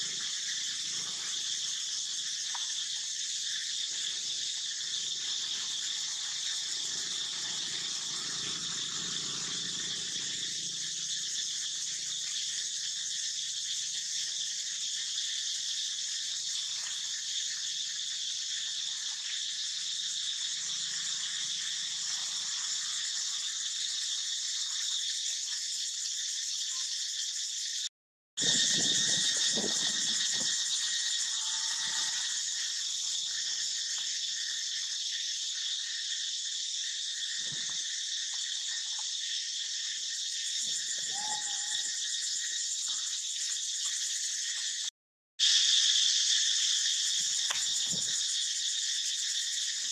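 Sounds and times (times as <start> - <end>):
high-pitched insect chorus: 0.0 - 49.9.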